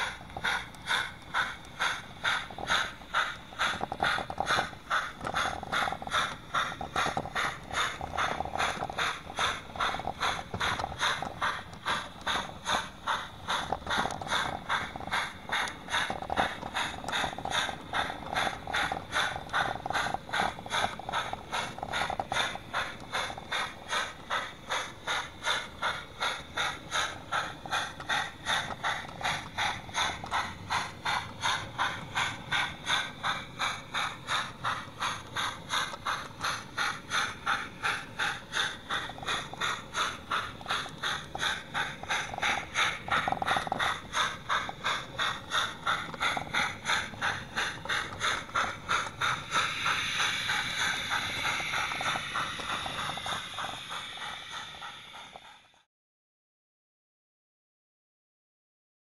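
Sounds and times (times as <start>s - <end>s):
model train clicking on track: 0.0s - 55.9s
steady hiss: 14.2s - 55.4s.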